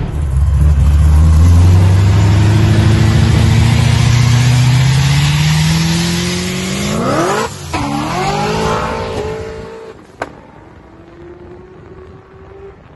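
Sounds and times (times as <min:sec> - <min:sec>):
car engine accelerating: 0:00.0 - 0:10.0.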